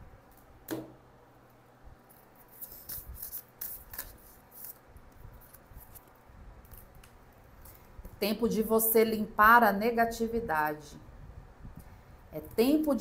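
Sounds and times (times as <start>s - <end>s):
cards rustling while shuffled: 2.1s - 4.8s.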